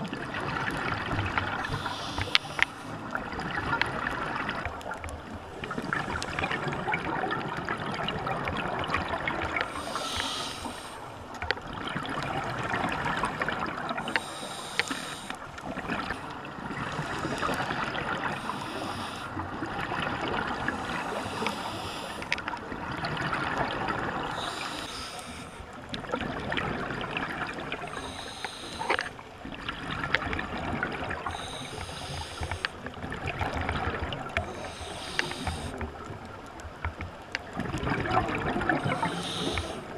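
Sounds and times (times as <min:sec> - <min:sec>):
gurgling exhaled bubbles: 0:00.0 - 0:39.9
diver breathing through regulator: 0:01.5 - 0:03.1, 0:09.6 - 0:11.2, 0:14.0 - 0:19.4, 0:20.7 - 0:22.5, 0:24.3 - 0:25.7, 0:27.9 - 0:29.2, 0:31.2 - 0:32.9, 0:34.4 - 0:35.8, 0:38.7 - 0:39.9.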